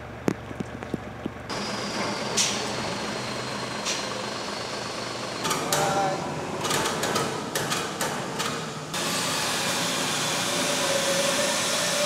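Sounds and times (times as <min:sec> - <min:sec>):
truck diesel engine idling: 0:01.4 - 0:06.6.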